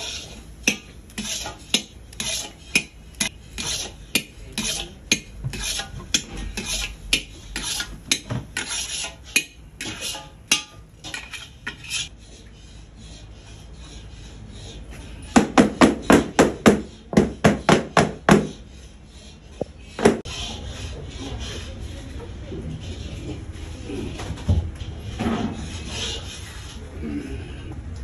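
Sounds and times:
metal spatula scraping steel pan: 0:00.0 - 0:15.2, 0:18.4 - 0:23.8, 0:24.9 - 0:26.9.

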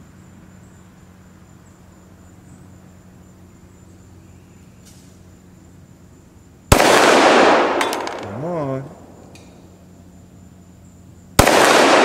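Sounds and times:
insects trilling: 0:00.0 - 0:11.7
faint low hum: 0:07.5 - 0:11.4.

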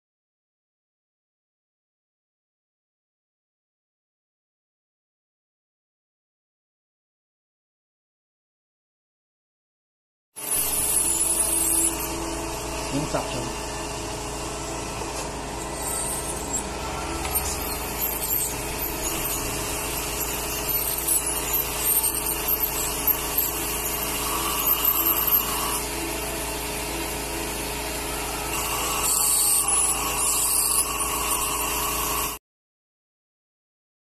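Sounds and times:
ultrasonic scaler whining: 0:10.4 - 0:32.4.

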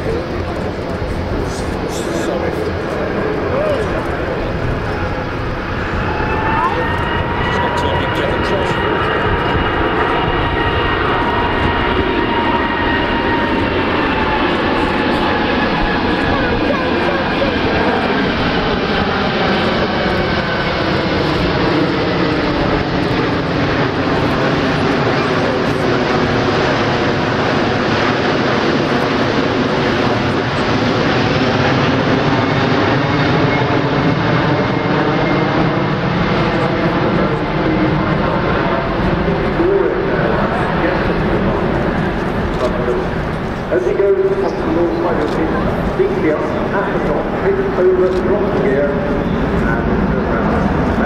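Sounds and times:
whining engine tones: 0:00.0 - 0:35.7
jet airliner flying overhead: 0:00.0 - 0:51.0.

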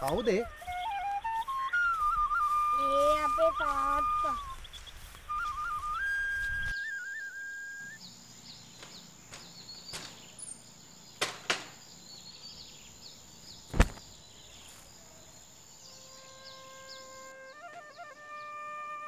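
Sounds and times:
held flute note: 0:00.1 - 0:04.6, 0:05.2 - 0:08.0, 0:16.4 - 0:19.0
sharp clicks: 0:13.7 - 0:14.1.

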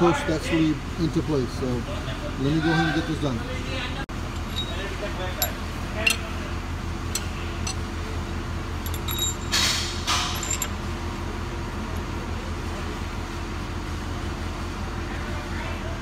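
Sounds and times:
steady low hum: 0:04.1 - 0:11.6
steel tools clinking on metal: 0:04.2 - 0:06.4, 0:07.0 - 0:07.9, 0:08.8 - 0:10.8.

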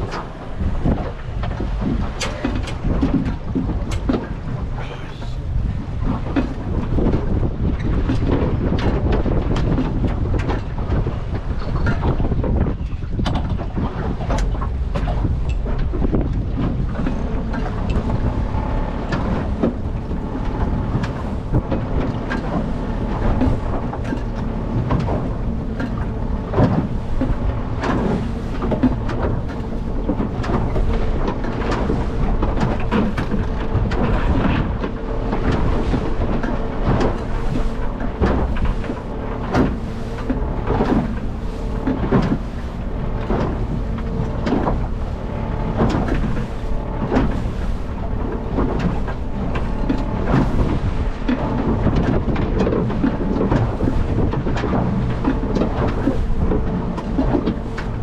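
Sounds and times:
water splashing against boat hull: 0:00.0 - 0:58.0
wind and water rumble: 0:00.0 - 0:58.0
faint motor hum: 0:14.4 - 0:58.0.

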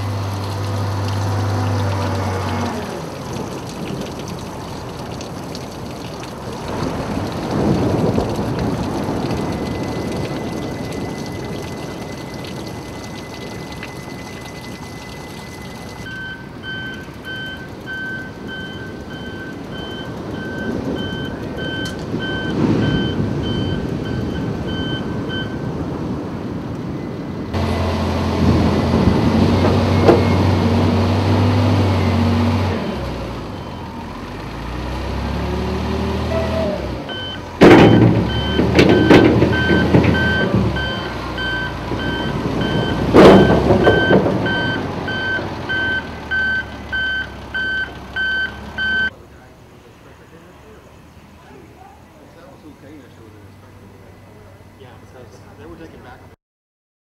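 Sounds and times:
water washing over beach: 0:00.0 - 0:26.2
reversing alarm beeping: 0:09.2 - 0:25.8, 0:29.4 - 0:30.8, 0:36.3 - 0:49.1
loud diesel engine running: 0:27.6 - 0:48.9.

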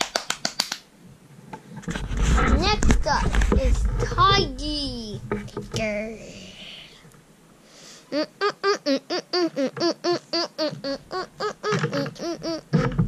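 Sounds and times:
child babbling sing-song syllables: 0:08.1 - 0:12.9.

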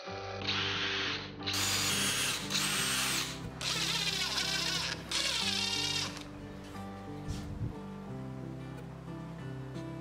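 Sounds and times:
background music: 0:00.0 - 0:10.0
power drill running: 0:00.5 - 0:06.2.

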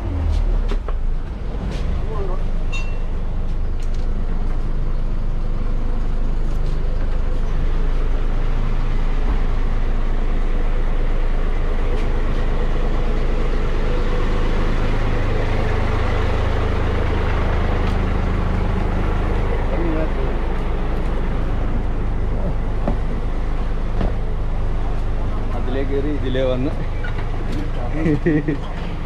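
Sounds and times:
boat engine droning: 0:07.1 - 0:29.0.

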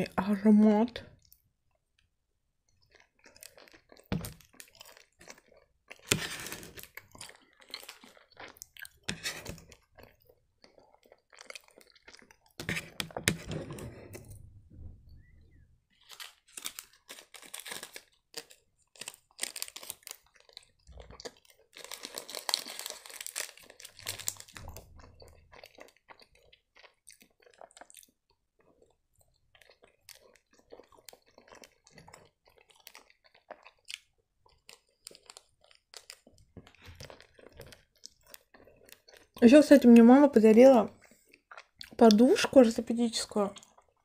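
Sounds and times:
person chewing: 0:01.2 - 0:14.2, 0:15.9 - 0:39.4, 0:41.0 - 0:42.2, 0:43.6 - 0:44.0
plastic wrapper crinkling and tearing: 0:15.9 - 0:24.8.

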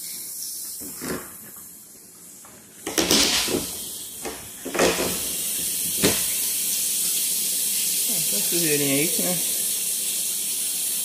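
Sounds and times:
water spraying into tank: 0:03.4 - 0:11.0.

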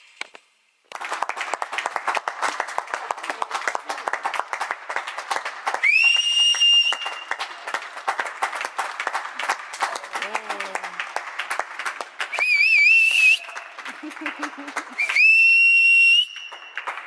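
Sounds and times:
crowd applauding: 0:00.8 - 0:17.0
loud whistle: 0:05.7 - 0:07.6, 0:12.3 - 0:13.8, 0:14.9 - 0:17.0.

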